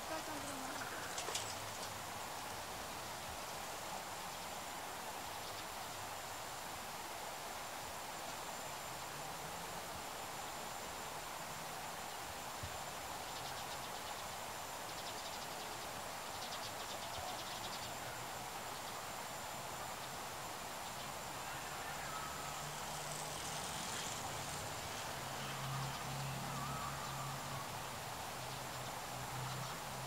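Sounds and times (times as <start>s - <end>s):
steady outdoor hiss: 0.0s - 30.0s.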